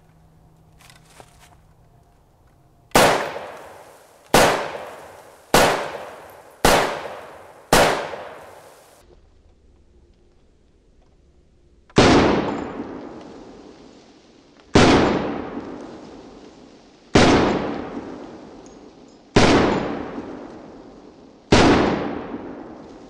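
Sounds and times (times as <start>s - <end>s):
rifle shots: 2.9s - 9.0s, 12.0s - 13.4s, 14.8s - 15.8s, 17.2s - 18.3s, 19.4s - 20.6s, 21.5s - 22.8s.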